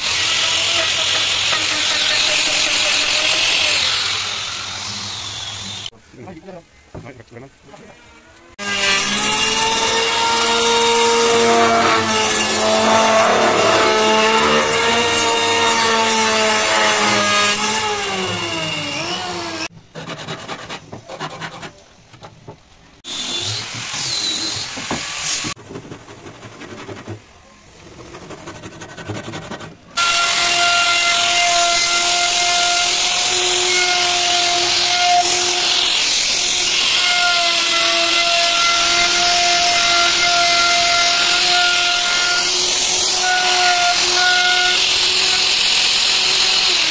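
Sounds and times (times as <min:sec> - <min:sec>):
power tool working wood: 0:08.6 - 0:19.7, 0:30.0 - 0:46.9.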